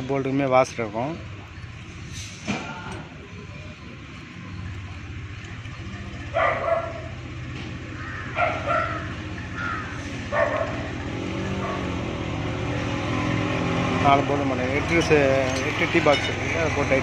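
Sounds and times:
dog barking: 6.3s - 7.1s, 8.4s - 9.1s, 10.3s - 10.9s.

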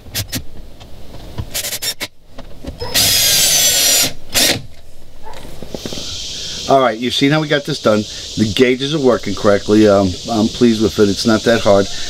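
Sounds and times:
cordless drill driving screws: 2.9s - 4.6s.

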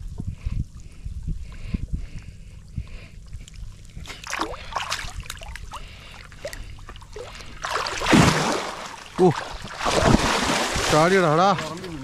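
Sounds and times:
steady low rumble: 0.0s - 12.0s
water splashing from wading: 4.0s - 12.0s.

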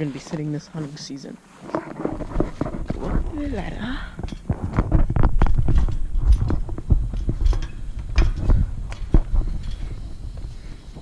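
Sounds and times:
low handling rumble: 2.1s - 11.0s
metallic clanks on ladder rungs: 5.7s - 10.0s.

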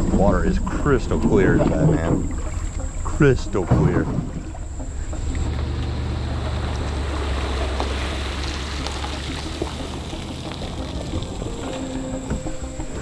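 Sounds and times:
water pouring and splashing: 0.0s - 13.0s
truck engine running: 4.4s - 13.0s.

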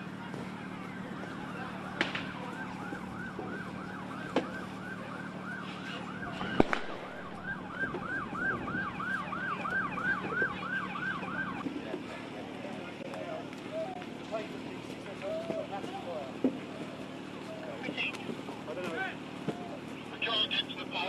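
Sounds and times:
sharp cracks from burning wreckage: 0.1s - 8.9s
siren yelping: 0.5s - 11.6s.

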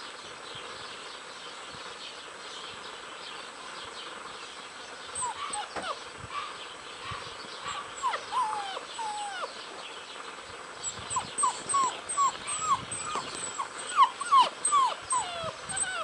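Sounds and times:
puppies whining and whimpering: 5.2s - 6.1s, 7.7s - 9.6s, 10.8s - 16.0s.

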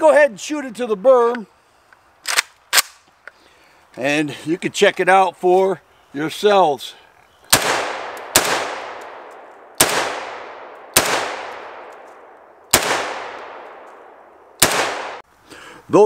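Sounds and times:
rifle shots with echo: 7.5s - 15.2s.

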